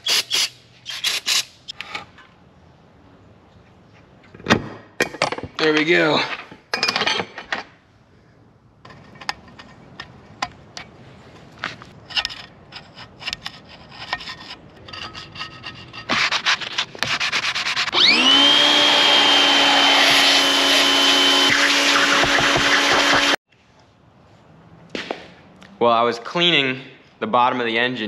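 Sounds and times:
power tool high-pitched whine: 17.9 - 23.4.

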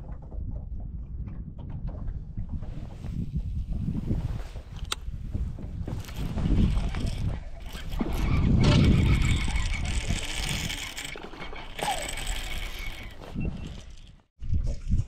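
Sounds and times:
fishing reel clicking: 6.0 - 8.2, 8.9 - 14.1.

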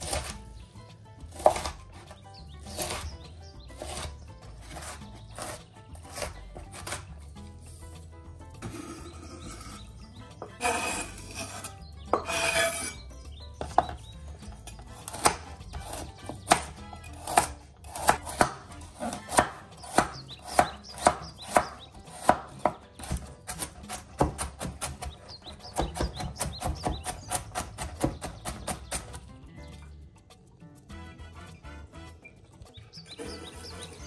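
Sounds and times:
knife chopping carrots on board: 0.0 - 0.6, 1.2 - 7.5, 13.6 - 29.3.

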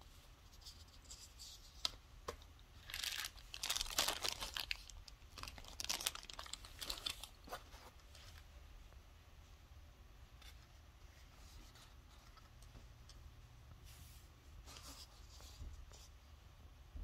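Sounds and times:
plastic scrapes and rustles: 2.8 - 8.5.

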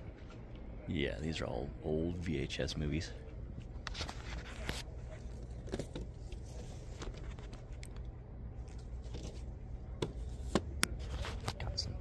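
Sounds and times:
faint clicks and rustles: 3.2 - 12.0.

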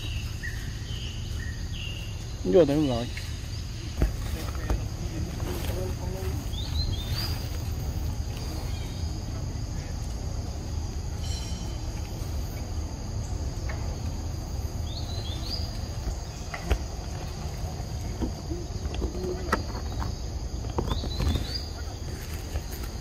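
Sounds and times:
insects chorus: 0.0 - 23.0.

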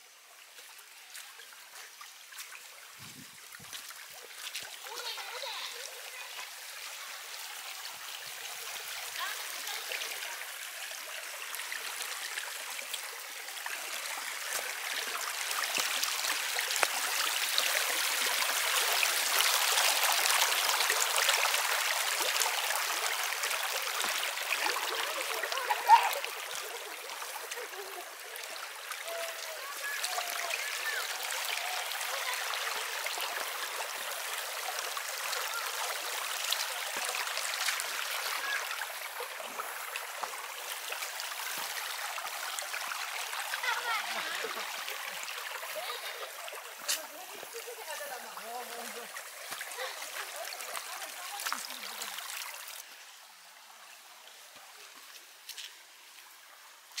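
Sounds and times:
stream rushing over rocks: 0.0 - 57.0.

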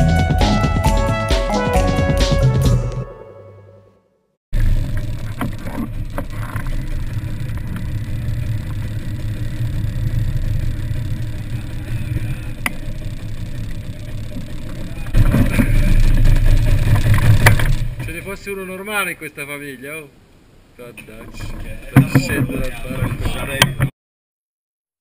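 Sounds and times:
music: 0.0 - 4.3
scooter engine running: 4.6 - 18.3.

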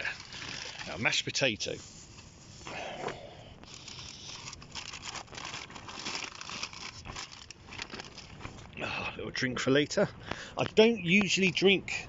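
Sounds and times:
plastic bags rustling: 0.0 - 1.2, 3.7 - 8.8.

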